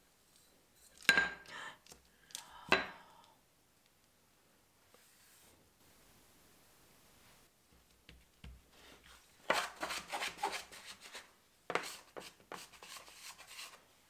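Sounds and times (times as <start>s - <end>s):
scraper rubbing and scraping dough: 9.4s - 13.8s.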